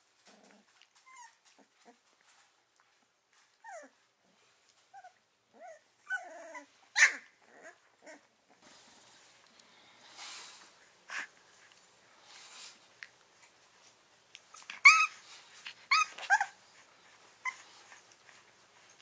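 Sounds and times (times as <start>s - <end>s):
puppies yelping: 5.0s - 8.3s, 14.6s - 16.6s.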